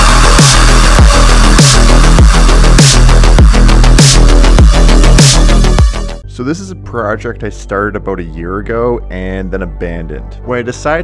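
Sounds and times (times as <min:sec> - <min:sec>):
deep kick drum: 0:00.0 - 0:06.2
electronic music: 0:00.0 - 0:06.6.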